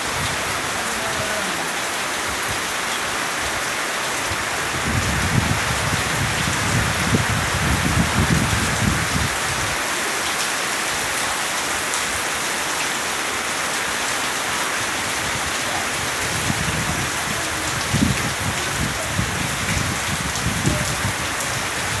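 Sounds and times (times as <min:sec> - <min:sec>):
heavy rain on foliage: 0:00.0 - 0:22.0
wind rumbling on microphone: 0:04.3 - 0:09.8, 0:15.2 - 0:22.0.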